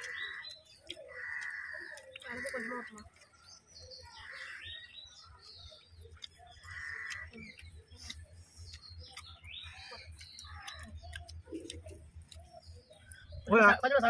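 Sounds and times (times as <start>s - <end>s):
crow cawing: 0.0s - 3.0s, 4.2s - 4.7s, 6.6s - 7.3s.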